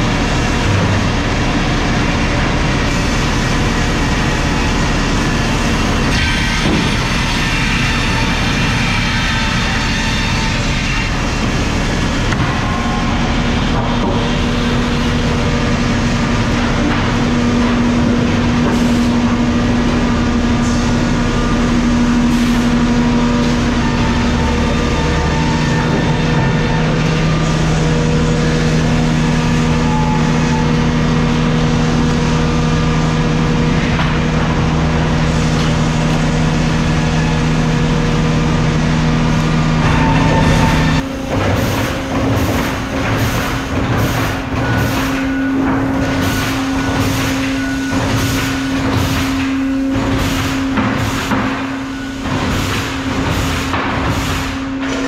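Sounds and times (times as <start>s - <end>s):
sawmill machinery running: 0.0s - 55.0s.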